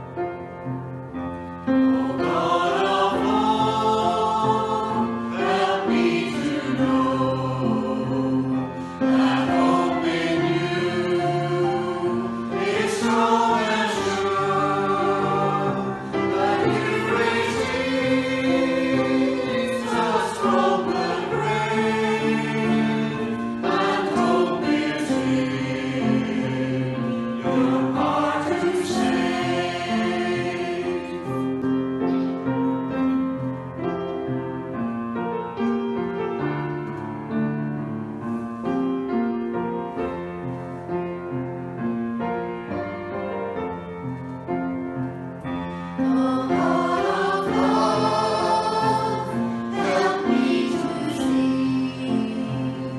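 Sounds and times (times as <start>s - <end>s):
instrumental accompaniment: 0.0s - 52.9s
church choir singing a hymn: 1.4s - 33.1s, 45.4s - 52.9s.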